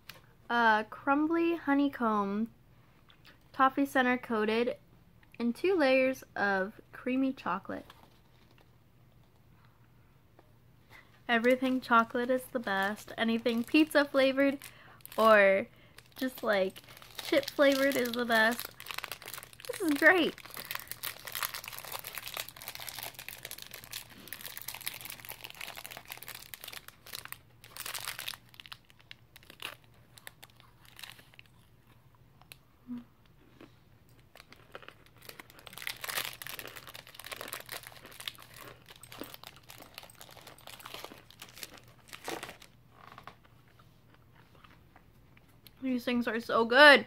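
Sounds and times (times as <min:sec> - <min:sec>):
foil wrapper crinkling: 0:11.3 - 0:31.6, 0:34.3 - 0:43.4
crunching candy bar: 0:11.3 - 0:45.8.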